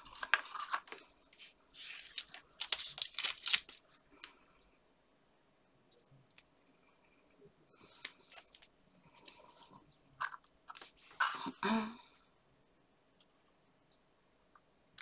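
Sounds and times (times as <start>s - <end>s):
paper crinkling and rustling: 0.0s - 4.3s.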